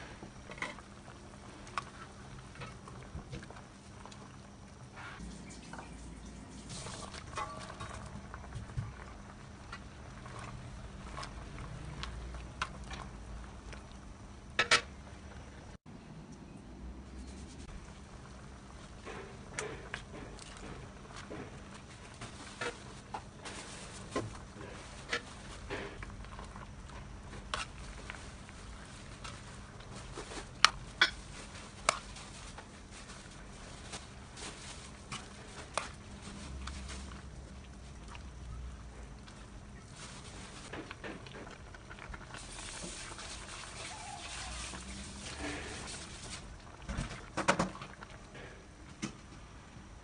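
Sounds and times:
leaves rustling: 31.2s - 37.9s, 39.3s - 40.7s, 42.4s - 46.5s.

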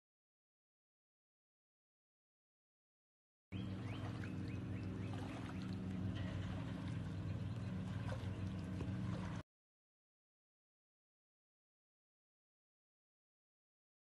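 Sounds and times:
low machine hum: 3.5s - 9.4s.

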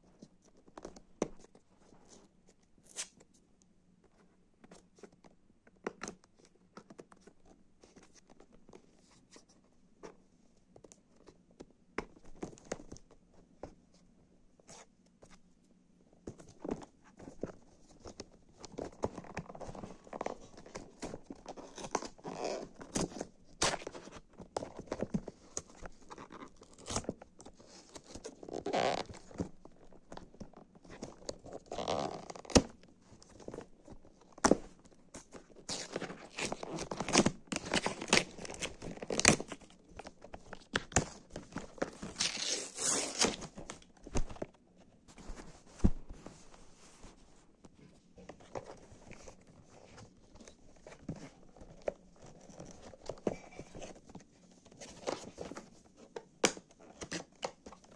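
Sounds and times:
cardboard box being handled: 33.2s - 56.3s.

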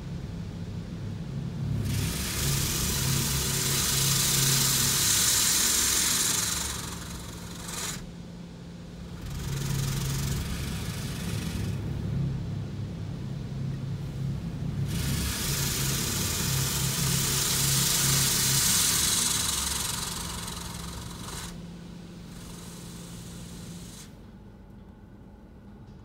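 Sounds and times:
water spray hissing: 1.9s - 8.0s, 14.9s - 21.6s, 22.3s - 24.2s.

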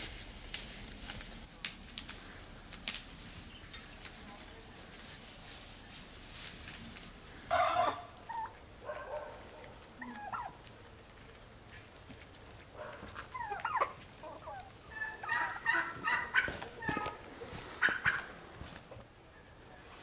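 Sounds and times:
chickens and turkeys calling: 7.0s - 20.0s.

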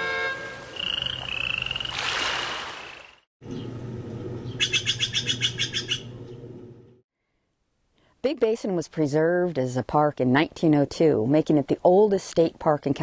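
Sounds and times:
whistled animal call notes: 0.7s - 2.0s
low steady hum: 3.4s - 7.0s
rapid pulsing animal call: 4.5s - 6.2s.

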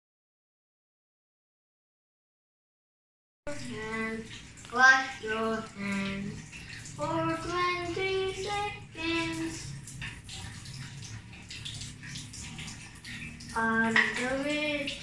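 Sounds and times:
child singing: 3.5s - 6.4s, 7.0s - 9.7s, 13.6s - 15.0s
tap water running into sink: 3.5s - 15.0s.

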